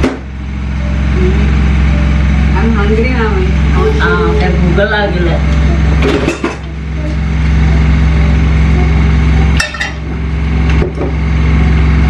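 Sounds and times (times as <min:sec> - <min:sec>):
low machine hum: 0:00.0 - 0:12.0
frying pan and dishes clattering: 0:06.0 - 0:06.7, 0:09.6 - 0:11.2.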